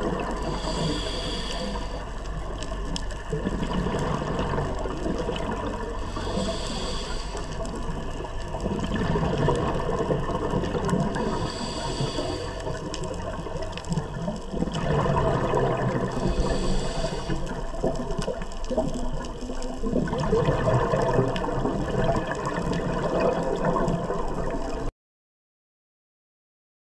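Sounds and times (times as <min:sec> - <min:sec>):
gurgling rush of exhaled bubbles: 0:00.0 - 0:24.9
regulator inhalation hiss: 0:00.4 - 0:02.2, 0:06.0 - 0:07.8, 0:11.2 - 0:12.8, 0:16.1 - 0:17.6.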